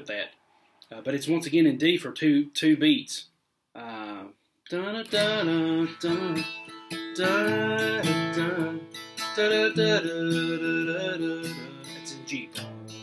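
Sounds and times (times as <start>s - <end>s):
acoustic guitar picking: 4.7s - 13.0s.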